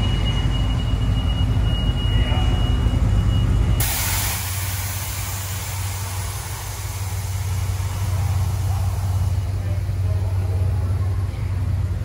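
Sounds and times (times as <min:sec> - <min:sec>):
vehicle engine idling: 0:00.0 - 0:12.0
steady hiss: 0:03.8 - 0:09.5.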